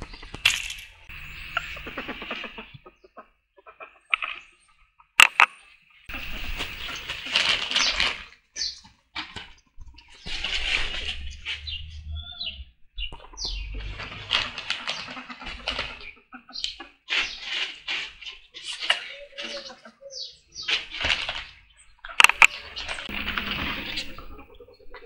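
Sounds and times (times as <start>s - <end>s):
plastic bag crinkling: 6.1s - 8.2s
ferrets scuffling and rustling: 6.1s - 11.9s, 13.4s - 16.2s, 16.8s - 19.7s, 20.6s - 21.7s, 22.4s - 24.4s.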